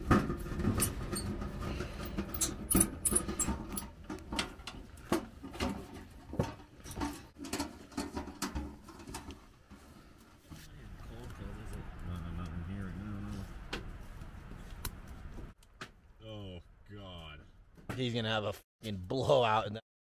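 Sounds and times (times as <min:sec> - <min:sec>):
sheet metal parts clinking: 0:00.0 - 0:09.4.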